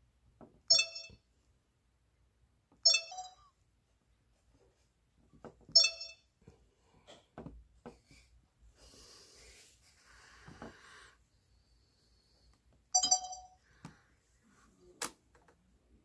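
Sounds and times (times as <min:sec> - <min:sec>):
short chime-like beeps: 0:00.7 - 0:01.2, 0:02.9 - 0:03.5, 0:05.8 - 0:06.2, 0:13.0 - 0:13.6.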